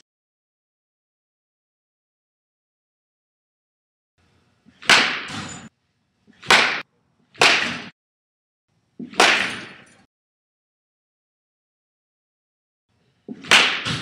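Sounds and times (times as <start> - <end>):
baseball bat cracking ball: 4.8 - 5.5, 6.4 - 8.0, 9.0 - 9.8, 13.3 - 14.0.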